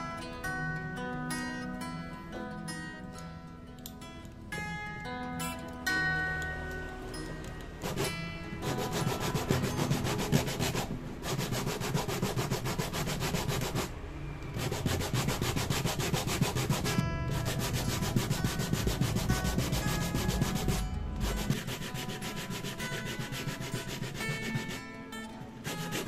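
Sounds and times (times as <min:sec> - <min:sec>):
sandpaper sanding wood: 0:07.8 - 0:13.9, 0:14.6 - 0:24.9, 0:25.6 - 0:26.0.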